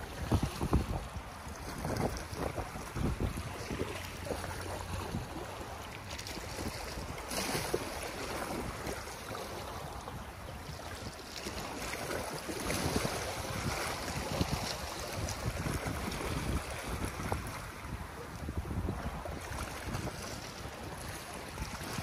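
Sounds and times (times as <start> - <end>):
sea swell sloshing against concrete: 0.0 - 22.0
wind rumbling on microphone: 0.0 - 22.0.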